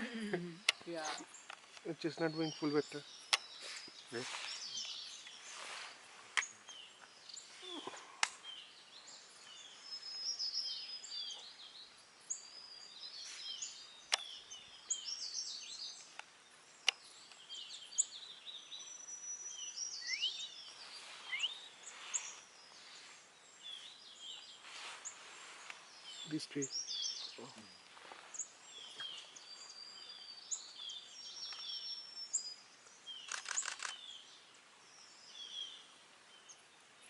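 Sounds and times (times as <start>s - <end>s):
small birds chirping: 0.0s - 37.0s
sharp clicks: 3.3s - 3.5s, 33.2s - 34.0s.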